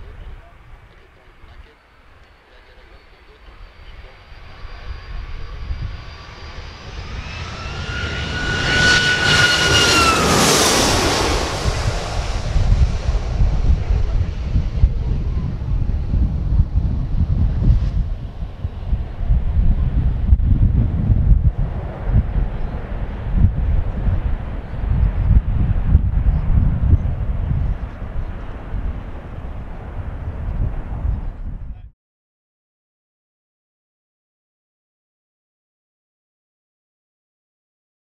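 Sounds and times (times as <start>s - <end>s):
jet engines passing overhead: 2.0s - 31.4s
wind buffeting microphone: 3.6s - 31.9s.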